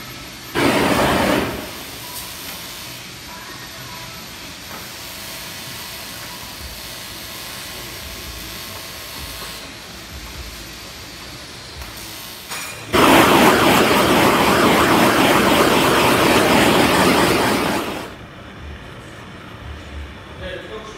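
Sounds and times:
gas torch flame blowing: 0.6 - 2.2, 12.9 - 18.2.

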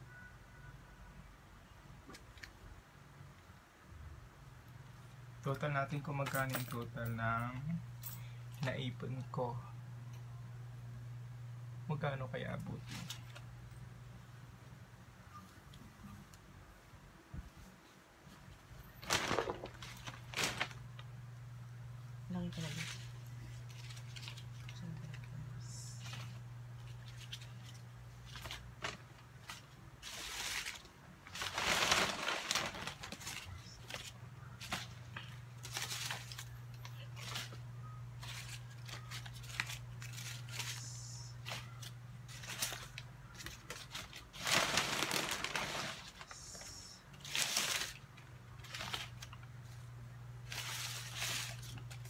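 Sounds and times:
steady low hum: 2.7 - 44.7, 45.7 - 52.0
paper banknotes rustling: 22.5 - 37.6, 38.2 - 49.8, 50.4 - 52.0.

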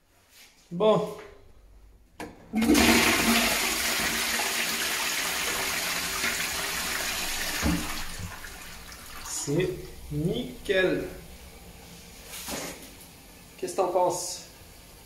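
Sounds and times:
toilet water rushing: 2.5 - 10.0.

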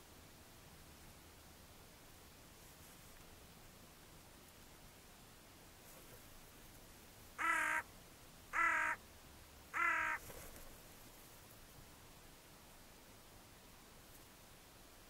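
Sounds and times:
crow cawing: 7.4 - 7.9, 8.5 - 9.0, 9.7 - 10.2.

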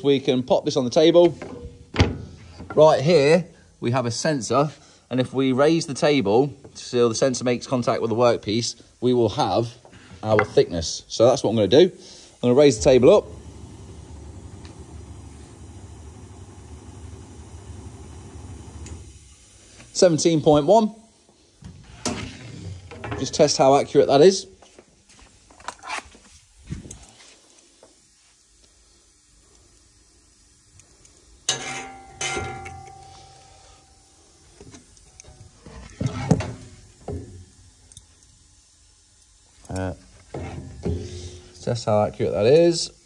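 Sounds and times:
electric motor humming: 12.8 - 19.2.

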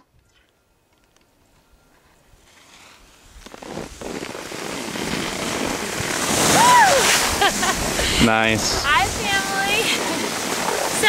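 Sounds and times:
skis scraping over snow: 2.4 - 11.0
wind on microphone: 3.2 - 11.0.

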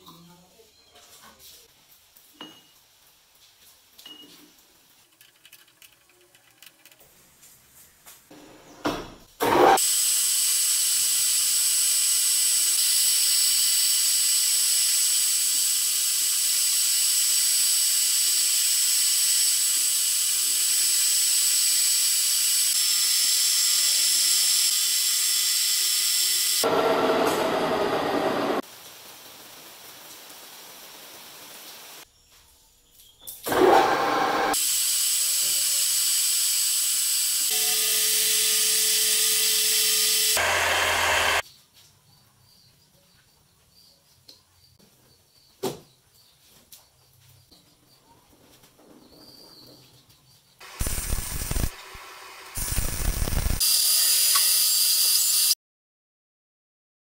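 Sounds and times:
metal lathe cutting whine: 35.9 - 41.4.

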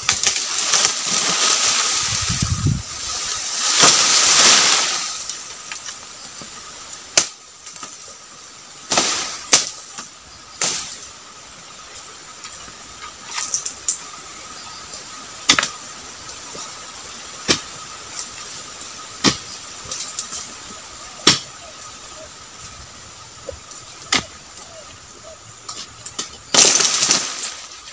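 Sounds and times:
chisel chopping into palm fronds: 3.6 - 5.1, 15.5 - 15.8, 17.4 - 17.7, 19.2 - 19.5, 21.2 - 21.5, 24.1 - 24.3, 26.2 - 27.6.

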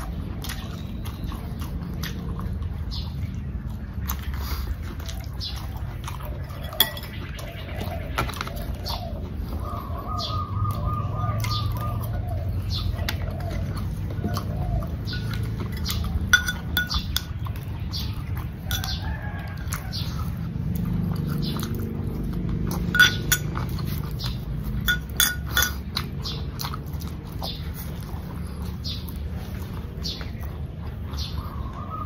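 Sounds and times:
chewing and mouth sounds: 0.0 - 32.0
spoon clinking on glass bowl: 6.6 - 7.2, 15.8 - 17.3, 18.7 - 19.0, 22.9 - 23.6, 24.9 - 25.8.

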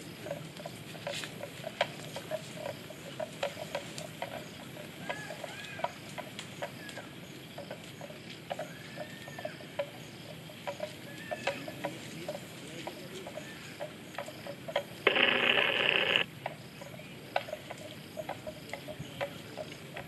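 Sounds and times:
faint steady hiss: 15.0 - 16.2
irregular sharp clicks: 15.1 - 16.2.

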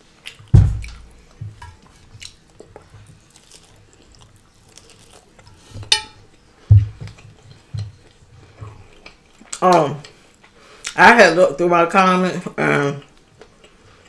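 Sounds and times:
faint chewing: 0.0 - 11.0, 12.9 - 14.0
low thumps: 0.5 - 1.6, 6.7 - 7.9.

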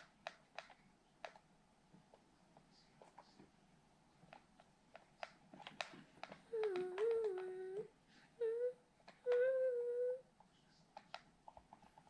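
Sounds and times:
voice holding a steady tone: 6.5 - 10.3.

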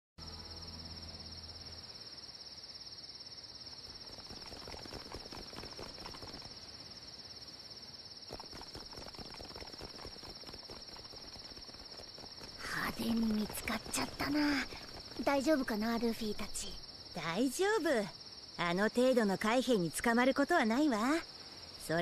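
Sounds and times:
crickets chirring: 0.2 - 22.0
running footsteps: 8.3 - 15.4.

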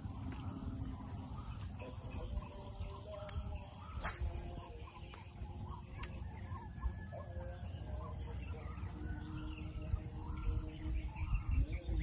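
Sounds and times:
birds calling: 0.0 - 12.0
high insect drone: 0.0 - 12.0
sharp click: 3.2 - 5.2
low wind rumble: 9.2 - 12.0.

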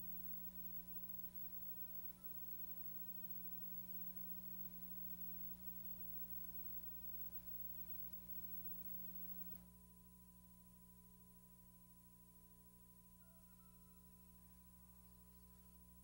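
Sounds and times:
faint electrical hum: 0.0 - 16.0.

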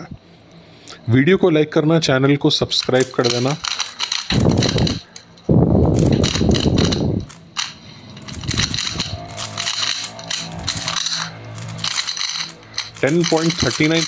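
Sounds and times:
faint steady hum: 0.0 - 14.0
speed cube clicking: 2.8 - 5.3, 5.9 - 14.0.

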